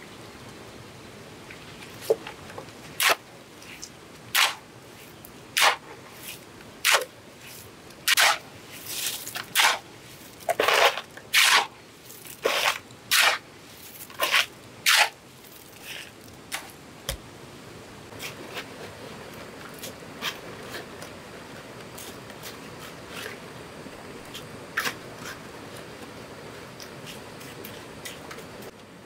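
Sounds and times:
shovel scraping gravel: 5.6 - 16.2.

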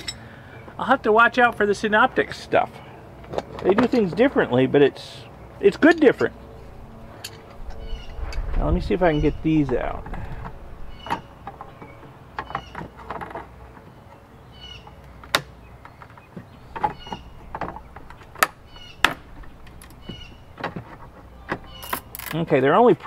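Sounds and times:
pliers clicking and creaking: 0.0 - 0.3, 7.1 - 8.4, 15.0 - 22.5.

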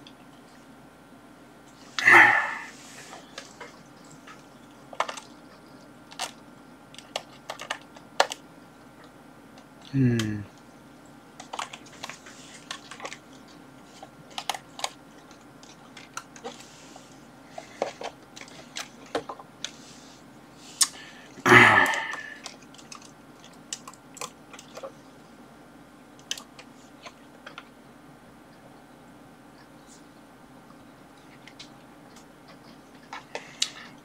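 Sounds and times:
person murmuring: 2.0 - 2.8, 9.8 - 10.6, 21.4 - 22.4.

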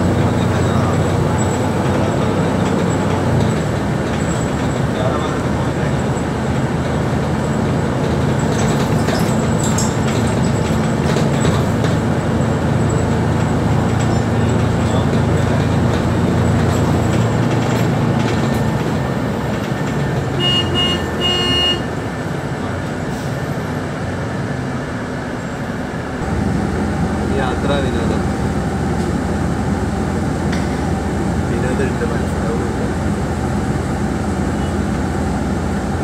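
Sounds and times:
bus engine and road rumble: 0.0 - 36.0
vehicle horn: 20.4 - 22.0.

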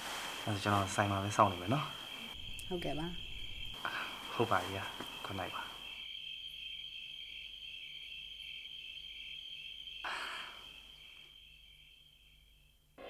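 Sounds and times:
soft rustle: 0.0 - 1.6
crickets chirping: 0.0 - 13.0.

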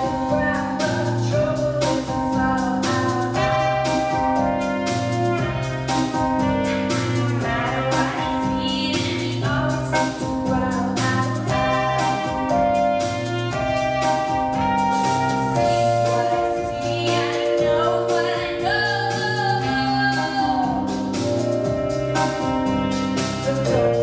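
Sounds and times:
woman singing into a microphone: 0.0 - 4.2, 7.4 - 12.6, 15.6 - 21.1, 23.3 - 24.0
live pop band playing: 0.0 - 24.0
trumpet: 0.0 - 24.0.

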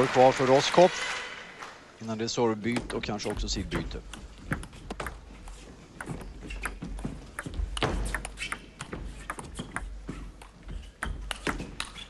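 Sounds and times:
ball bouncing on table: 2.7 - 5.2, 6.0 - 12.0
table tennis ball clicking off bats: 2.7 - 5.2, 6.0 - 12.0.

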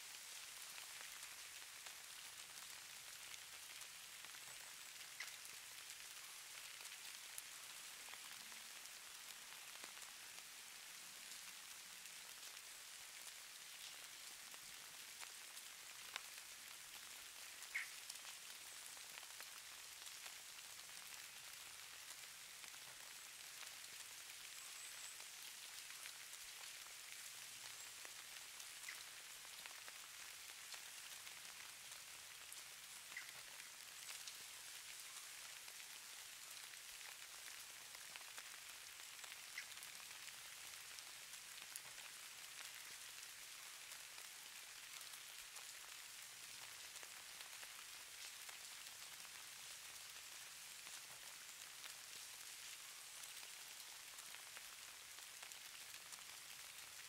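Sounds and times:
light rain pattering: 0.0 - 57.0
small ticks: 4.4 - 6.2, 17.4 - 20.2, 32.5 - 34.4, 39.2 - 40.8.

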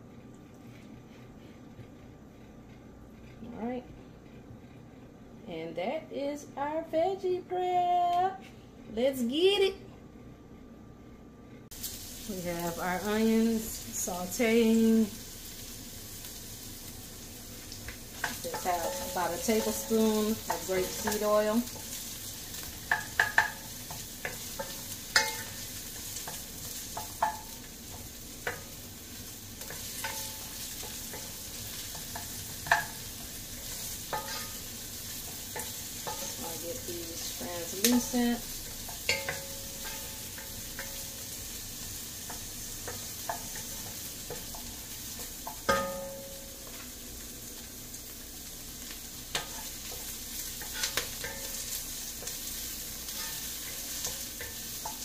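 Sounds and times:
onion sizzling in oil: 11.7 - 55.0
spoon knocking against pot: 45.5 - 46.3.

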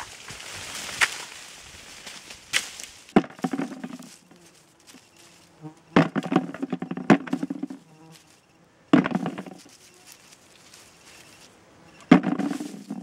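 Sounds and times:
apples falling: 0.0 - 13.0
twigs and leaves rattling: 0.0 - 13.0
pole knocking branches: 2.5 - 5.0, 5.9 - 7.9, 8.9 - 10.2, 12.0 - 13.0.

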